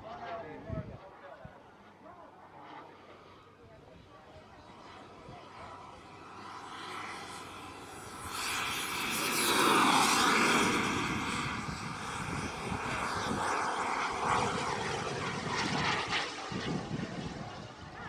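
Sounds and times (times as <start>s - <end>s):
model jet turbine passing: 0.0s - 18.0s.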